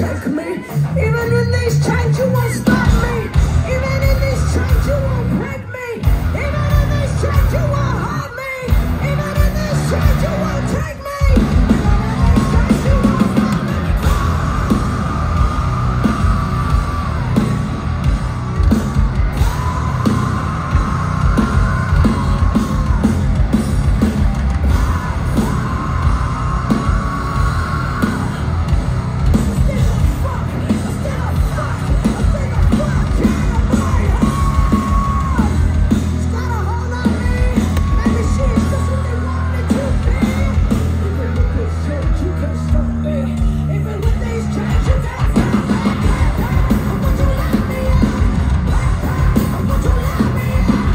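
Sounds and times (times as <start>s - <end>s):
live metal band playing: 0.0s - 50.9s
person yelling: 32.3s - 35.6s.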